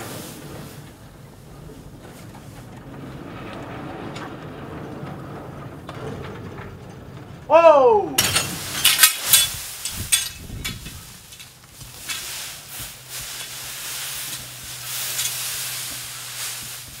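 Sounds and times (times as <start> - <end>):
dry hay rustling and crackling: 0.0 - 3.8, 7.6 - 17.0.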